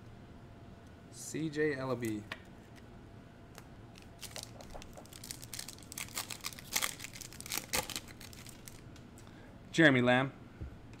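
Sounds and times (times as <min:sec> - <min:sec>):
foil wrapper crinkling and tearing: 0:04.0 - 0:08.9.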